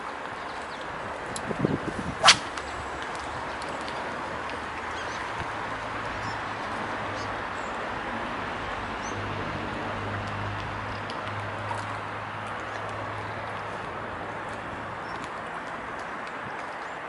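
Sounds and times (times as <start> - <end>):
wind: 0.0 - 17.0.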